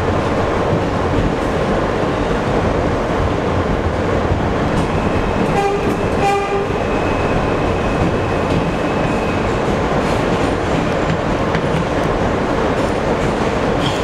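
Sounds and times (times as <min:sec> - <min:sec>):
subway train rumbling in tunnel: 0:00.0 - 0:14.0
train horn toots: 0:05.4 - 0:06.8.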